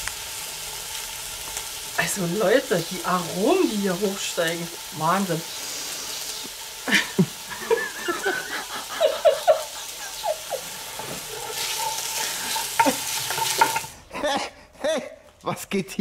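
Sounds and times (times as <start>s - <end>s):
meat sizzling in a pot: 0.0s - 14.1s
wooden spoon scraping a pot: 10.7s - 14.0s.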